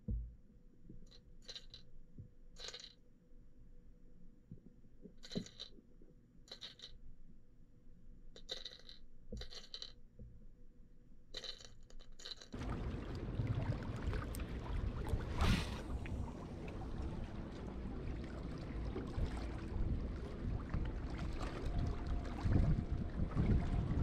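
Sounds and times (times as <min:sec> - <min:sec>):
water lapping at shore: 0:12.6 - 0:24.0
wind rushing: 0:12.6 - 0:24.0.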